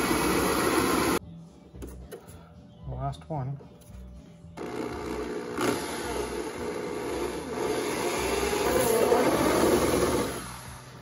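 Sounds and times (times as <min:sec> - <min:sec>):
power drill drilling fibreglass: 0:00.0 - 0:01.2, 0:04.6 - 0:11.0.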